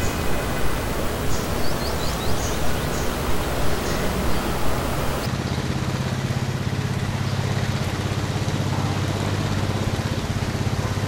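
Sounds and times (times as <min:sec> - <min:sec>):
vehicle engine running: 0:00.0 - 0:05.3.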